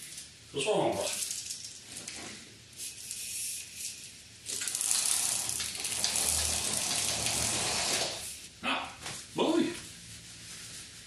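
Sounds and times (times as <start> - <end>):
roller blind rolling up: 4.5 - 8.4.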